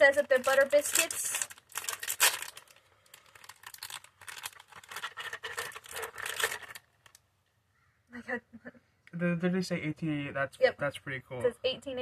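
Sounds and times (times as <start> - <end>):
biscuit packet crinkling: 0.0 - 7.3.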